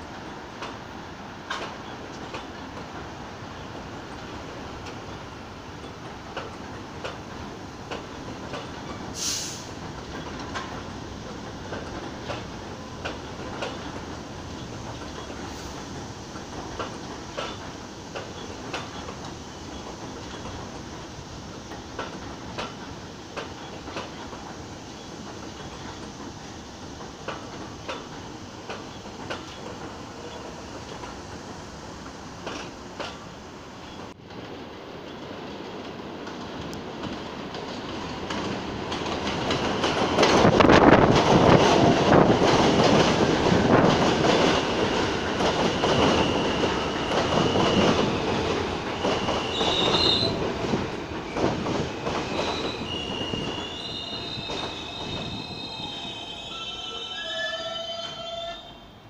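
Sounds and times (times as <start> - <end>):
train wheels clicking on rail joints: 0.0 - 56.4
train rumbling past: 0.0 - 59.0
short hiss: 9.1 - 9.8.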